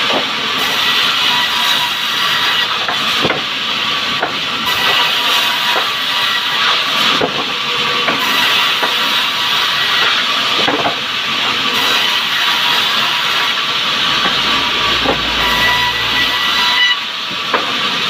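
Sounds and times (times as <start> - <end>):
band saw cutting a log: 0.0 - 18.0
deep hum: 13.7 - 17.0.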